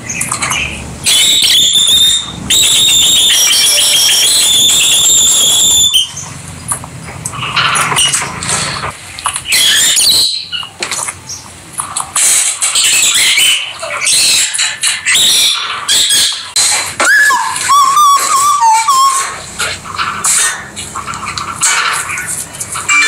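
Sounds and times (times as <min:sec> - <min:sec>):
lovebirds chirping and squeaking: 0:05.9 - 0:11.5, 0:12.2 - 0:23.0.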